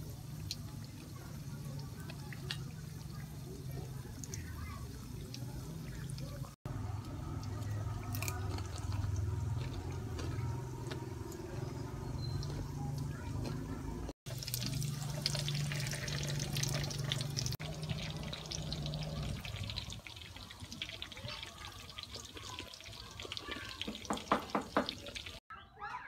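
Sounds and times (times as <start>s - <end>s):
mushrooms deep-frying in oil: 0.0s - 25.4s
crunching and chewing: 6.9s - 16.2s.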